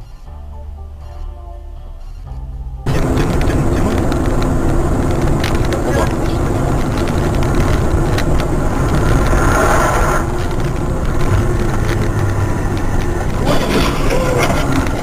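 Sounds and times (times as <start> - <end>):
car engine and road rumble: 0.0 - 15.0.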